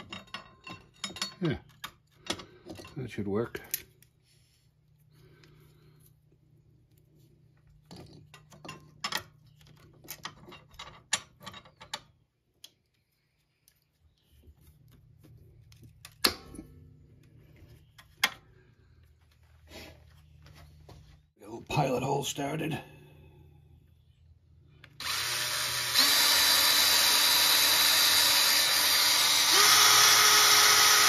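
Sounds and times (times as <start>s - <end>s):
metal clicks and clanks: 0.0s - 4.0s.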